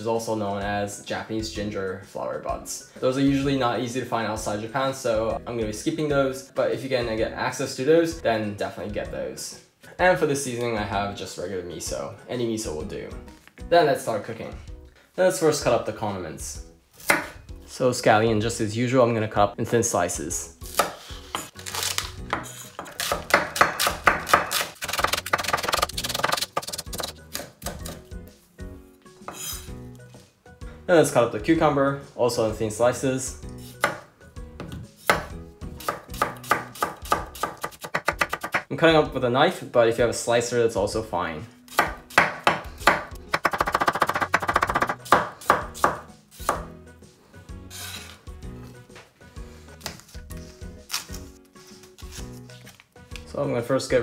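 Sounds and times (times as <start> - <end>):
soft background music: 0.0 - 54.0
knife chopping on wooden board: 17.0 - 17.4, 22.3 - 28.0, 33.8 - 38.7, 41.8 - 46.7
knife scraping cutting board: 20.8 - 23.4, 24.3 - 27.2, 29.2 - 29.8, 47.7 - 48.2.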